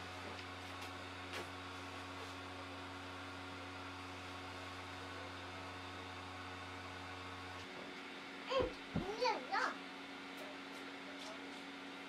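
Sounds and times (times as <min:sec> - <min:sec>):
blower fan humming: 0:00.0 - 0:12.0.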